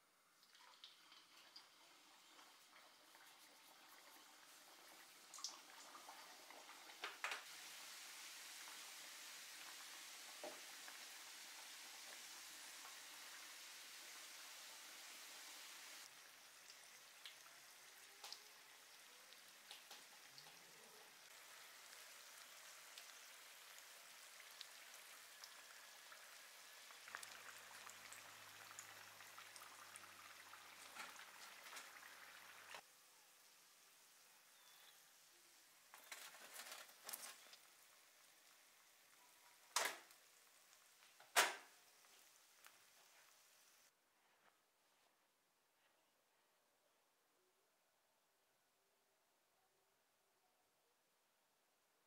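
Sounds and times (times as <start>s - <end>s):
oil sizzling: 0.2s - 43.9s
oil popping and crackling: 0.4s - 32.8s, 35.8s - 43.5s.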